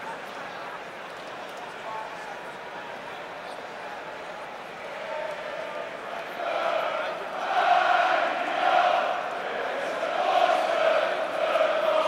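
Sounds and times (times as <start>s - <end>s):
stadium crowd chanting: 4.8s - 12.0s.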